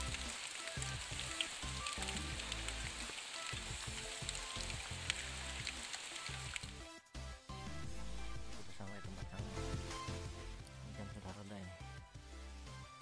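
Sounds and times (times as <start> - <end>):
steady rain: 0.0 - 6.8
background music with low notes: 0.0 - 13.0.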